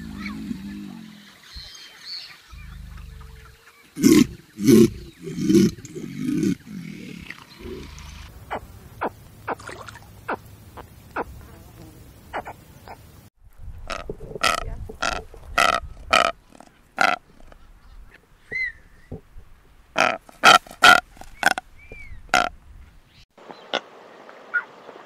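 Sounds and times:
caiman deep calls: 0.0s - 1.7s, 2.5s - 9.1s.

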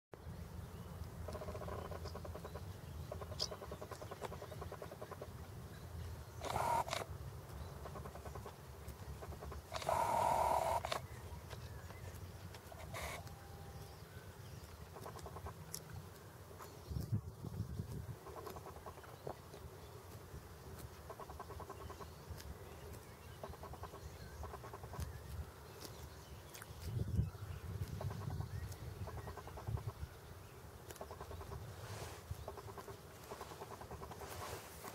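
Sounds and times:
goose cropping grass: 1.0s - 5.4s, 6.4s - 13.9s, 14.6s - 30.0s, 30.7s - 34.9s
harsh goose sound: 6.4s - 7.1s, 9.2s - 11.0s, 12.8s - 13.4s, 30.9s - 34.9s.

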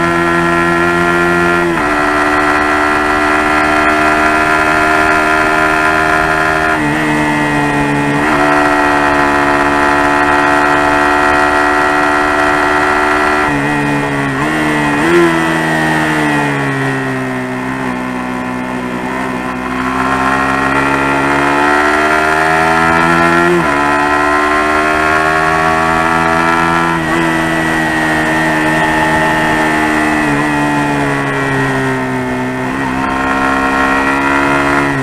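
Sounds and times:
motorcycle engine revving: 0.0s - 35.0s.

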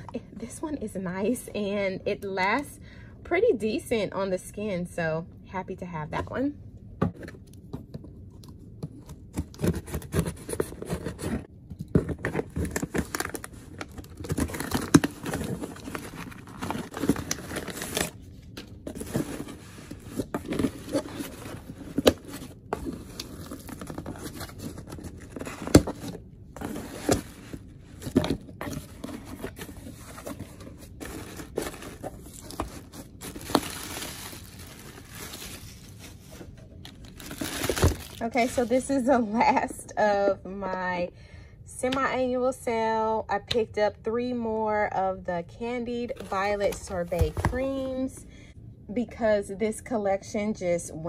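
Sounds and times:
packing material crinkling: 10.1s - 38.7s.

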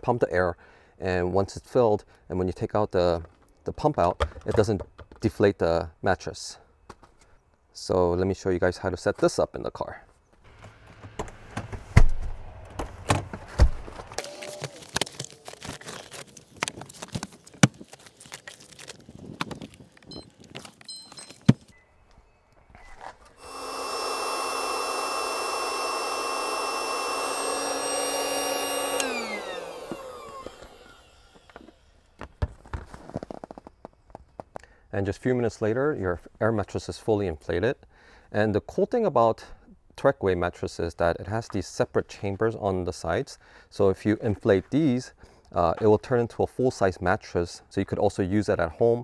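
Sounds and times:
electric air pump whining: 23.3s - 32.2s.

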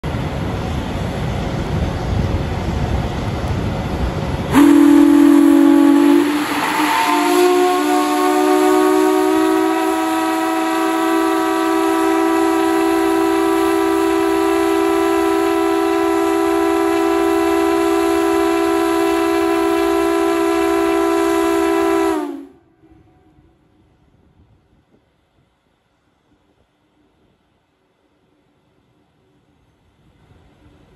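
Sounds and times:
steam venting: 1.0s - 22.5s
steam whistle blowing: 4.5s - 23.4s.

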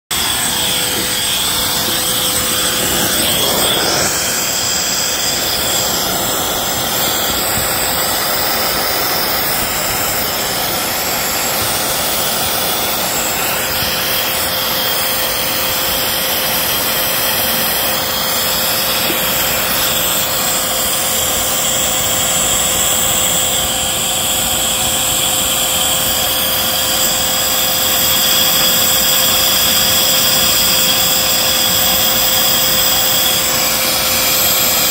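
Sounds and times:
vacuum cleaner whining: 0.0s - 34.9s
hose sucking leaves: 0.1s - 24.2s.

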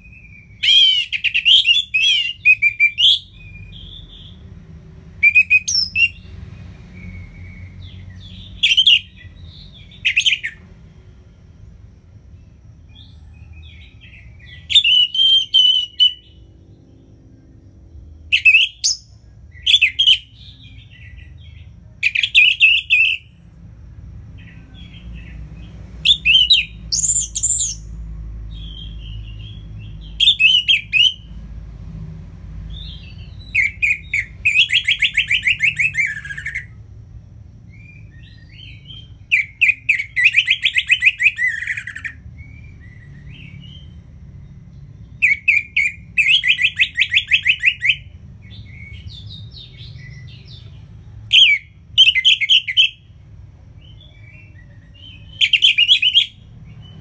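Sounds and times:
thrush singing whistled phrases: 0.0s - 4.5s, 5.2s - 6.3s, 7.0s - 10.6s, 14.1s - 16.5s, 18.3s - 21.3s, 22.0s - 23.4s, 26.0s - 31.3s, 32.7s - 36.8s, 37.7s - 44.1s, 45.1s - 50.7s, 51.3s - 53.2s, 53.8s - 57.0s.

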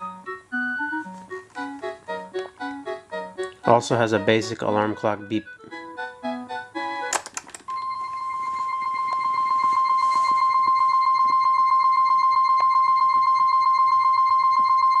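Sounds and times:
electronic alarm beeping: 7.7s - 15.0s.

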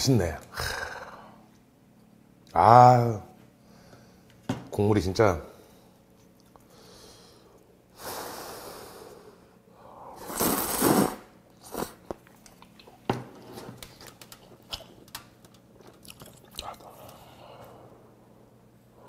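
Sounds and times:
person chewing: 6.2s - 6.7s, 11.6s - 13.1s, 13.8s - 17.4s
person slurping noodles: 10.2s - 12.0s.

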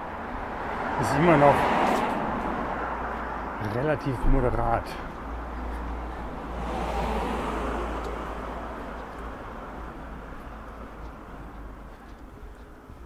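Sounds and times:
car driving past: 5.9s - 9.8s.

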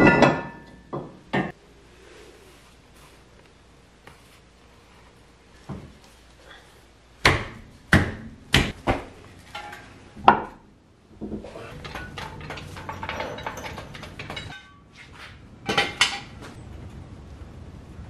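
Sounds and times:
metal tools clanking: 9.5s - 10.0s, 11.4s - 14.9s
floor jack rattling: 11.7s - 14.6s.

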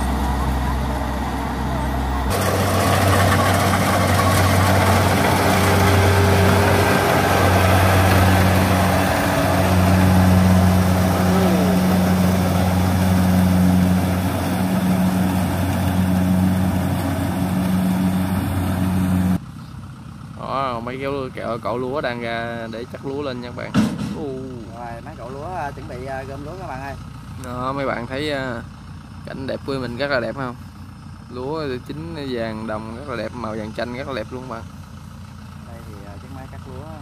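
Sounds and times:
diesel engine drone: 0.0s - 37.0s
harvester rushing noise: 2.2s - 19.4s.

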